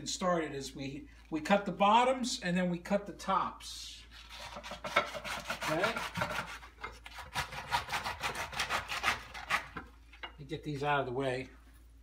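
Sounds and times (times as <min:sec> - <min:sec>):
knife sawing through artichoke: 0:04.1 - 0:09.9.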